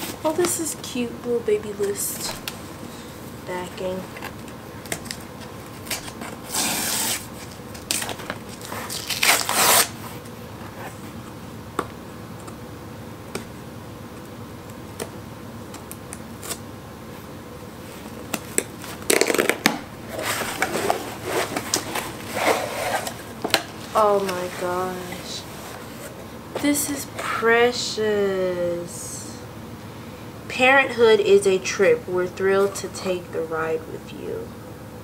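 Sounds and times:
tape and cardboard tearing: 0:04.1 - 0:10.0, 0:15.7 - 0:16.6, 0:18.3 - 0:26.1.

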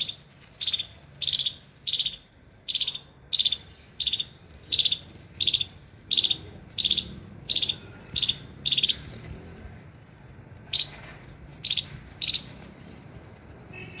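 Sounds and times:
high-pitched rattling chirps: 0:00.0 - 0:09.1.

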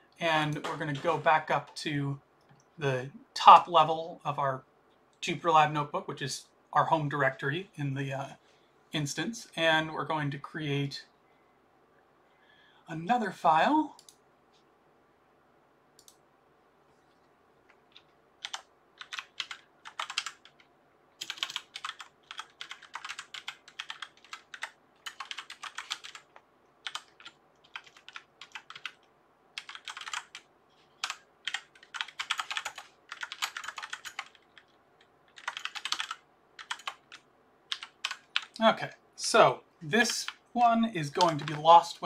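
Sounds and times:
typing on computer keyboard: 0:17.9 - 0:38.6, 0:41.2 - 0:41.6.

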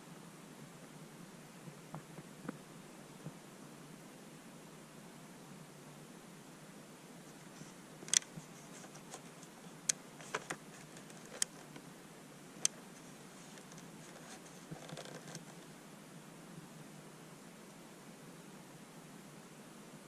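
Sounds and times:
faint steady hiss: 0:00.0 - 0:20.0
soft rustle: 0:07.1 - 0:11.9, 0:12.6 - 0:15.8.

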